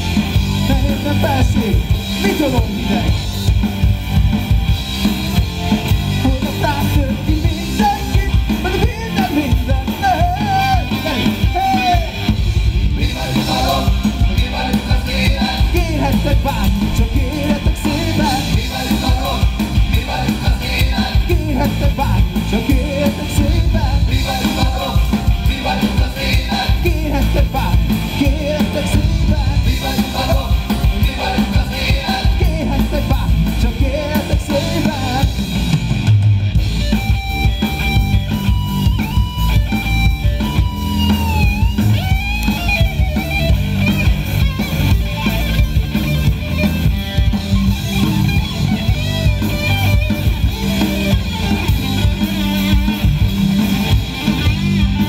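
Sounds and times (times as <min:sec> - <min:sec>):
drums: 0:00.0 - 0:55.0
electric guitar: 0:00.0 - 0:55.0
man singing into a microphone: 0:06.2 - 0:12.3, 0:13.0 - 0:35.4.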